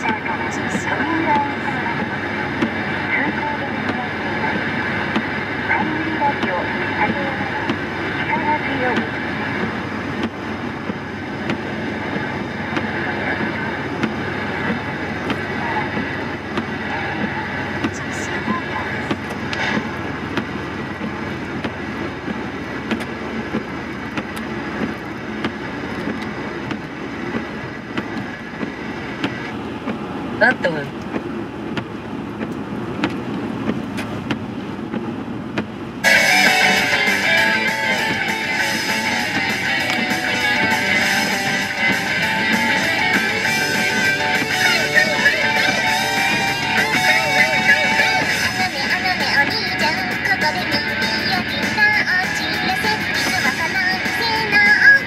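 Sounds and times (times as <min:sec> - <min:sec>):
road and tyre noise: 0:00.0 - 0:55.0
music with strummed guitar: 0:36.0 - 0:55.0.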